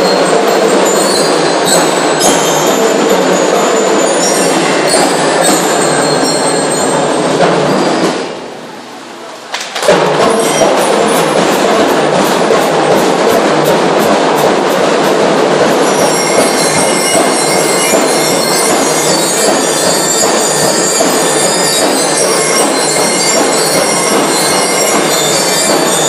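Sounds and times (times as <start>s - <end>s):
bell-lyre notes: 0.0s - 8.1s, 15.8s - 26.0s
drums and cymbals march beat: 0.0s - 8.6s, 9.8s - 26.0s.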